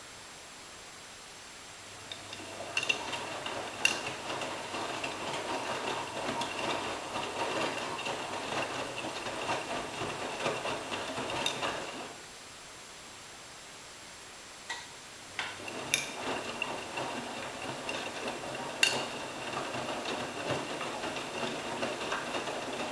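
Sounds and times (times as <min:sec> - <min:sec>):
wet laundry swishing in drum: 0:02.2 - 0:12.2, 0:15.6 - 0:22.9.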